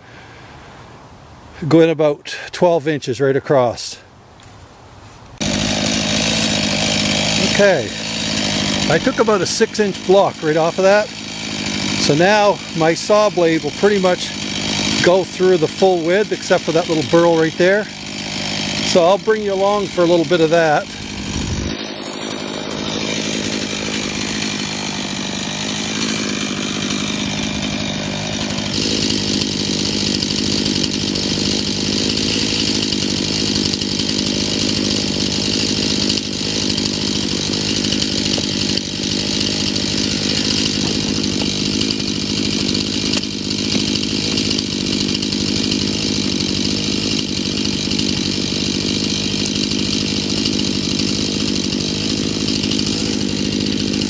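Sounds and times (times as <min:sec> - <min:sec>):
chainsaw running at high revs: 0:05.4 - 0:54.0.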